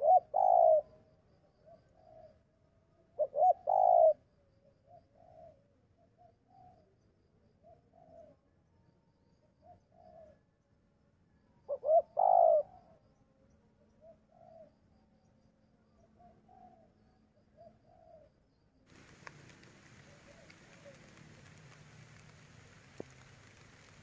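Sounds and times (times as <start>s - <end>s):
doves cooing: 0.0s - 0.9s, 3.2s - 4.2s, 11.7s - 12.8s, 18.9s - 24.0s.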